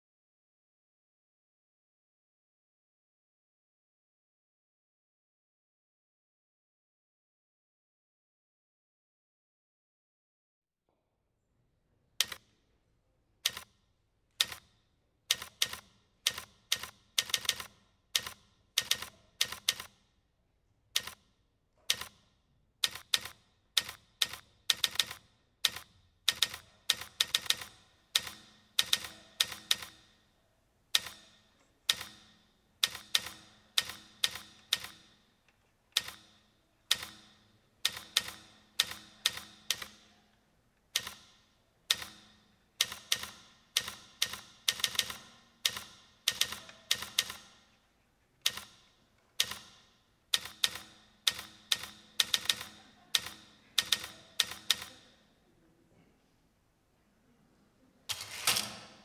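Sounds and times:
typewriter keys clacking: 0:22.8 - 0:30.2, 0:35.9 - 0:40.0, 0:41.9 - 0:47.6, 0:48.4 - 0:55.2.

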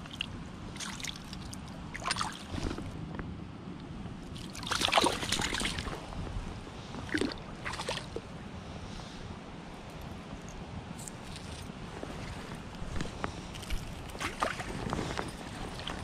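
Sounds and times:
fish thrashing and splashing water: 0:00.0 - 0:02.9, 0:04.4 - 0:06.0, 0:07.0 - 0:08.2, 0:13.6 - 0:16.0.

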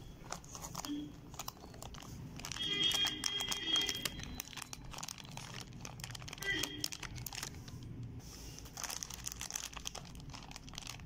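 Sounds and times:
chip packet crinkling: 0:00.2 - 0:11.0.

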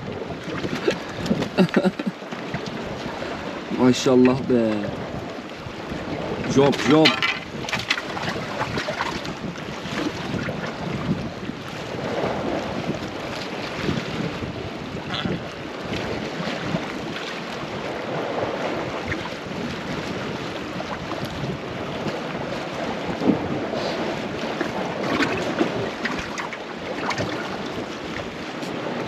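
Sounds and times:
waves washing against rocks: 0:00.0 - 0:29.0
wind buffeting microphone: 0:00.0 - 0:29.0.

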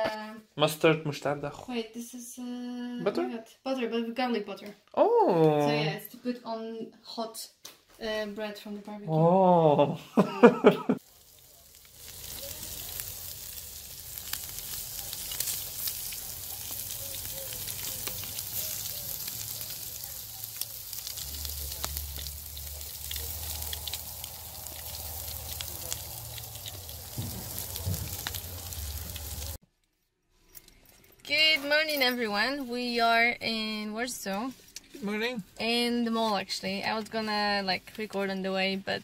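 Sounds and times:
meat sizzling on grill: 0:11.0 - 0:29.6.

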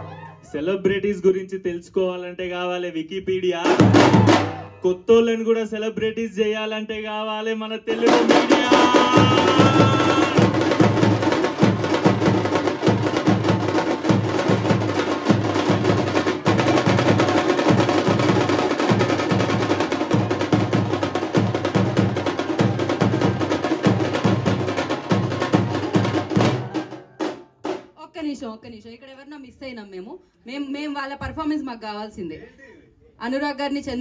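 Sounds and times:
drums played with sticks: 0:03.3 - 0:04.8, 0:07.9 - 0:28.0.

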